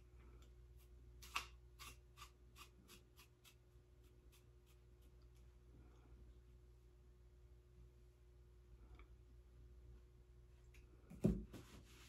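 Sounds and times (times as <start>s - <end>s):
comb scratching through wig: 0.8s - 5.5s.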